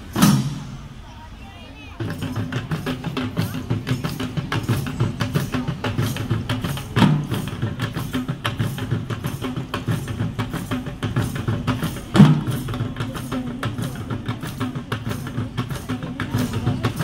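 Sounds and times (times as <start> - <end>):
drum band playing: 0.0 - 1.0, 2.0 - 17.0
loud drum hit: 0.0 - 1.0.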